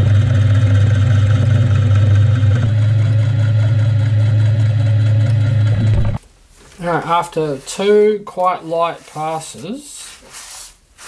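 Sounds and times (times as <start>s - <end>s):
milling machine hum: 0.0s - 6.2s.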